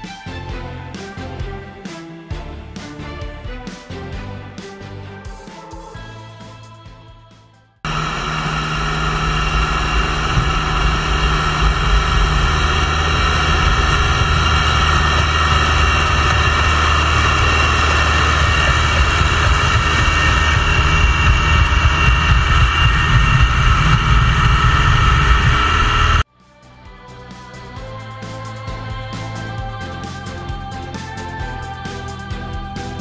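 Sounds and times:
steady machine whine: 0:07.8 - 0:26.3
crawler dozer engine running: 0:07.9 - 0:26.2.

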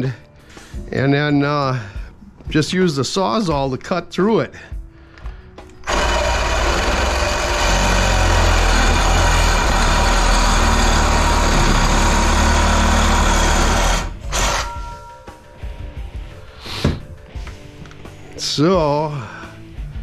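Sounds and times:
reciprocating saw cutting metal tubing: 0:05.8 - 0:14.9.

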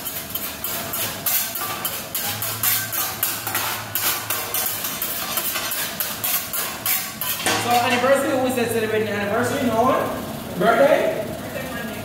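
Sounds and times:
metal spatula clacking on griddle: 0:00.0 - 0:08.1.

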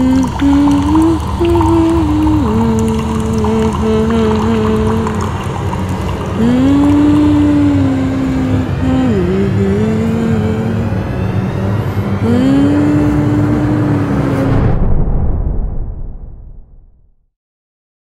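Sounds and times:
low sliding soundtrack notes: 0:00.0 - 0:15.0.

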